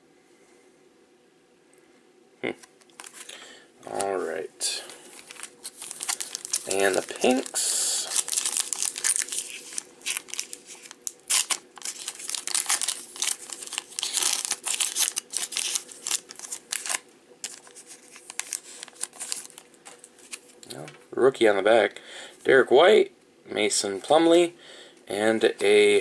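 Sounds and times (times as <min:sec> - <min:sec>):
foil wrapper crinkling: 0:02.8 - 0:20.7.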